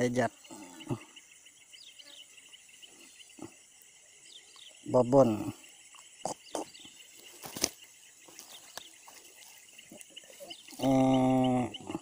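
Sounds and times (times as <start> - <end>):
faint insect chirping: 0.0 - 12.0
handling noises: 7.2 - 10.5.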